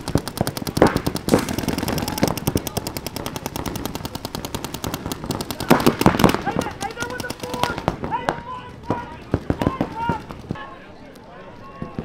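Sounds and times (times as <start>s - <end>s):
paintball markers firing: 0.0s - 11.2s.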